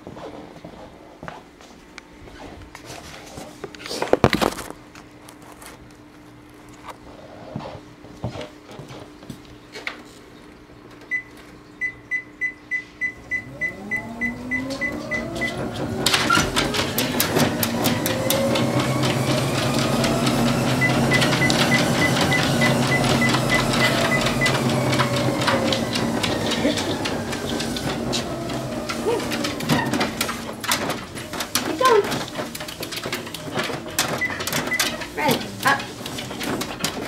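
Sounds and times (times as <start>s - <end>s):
treadmill motor whine: 10.9s - 37.0s
treadmill console beeps: 11.1s - 37.0s
dog footfalls on treadmill belt: 13.3s - 37.0s.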